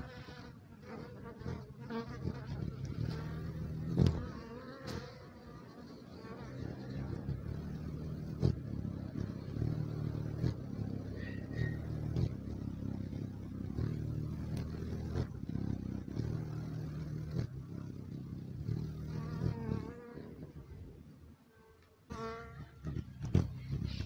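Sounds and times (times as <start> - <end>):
hummingbird wings humming: 0.0 - 24.0
high wavering bird chirps: 9.2 - 14.4.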